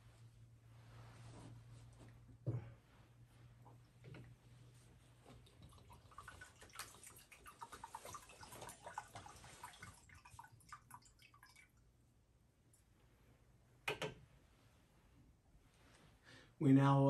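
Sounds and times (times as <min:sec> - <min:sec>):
water trickling and dripping: 0:05.3 - 0:11.9.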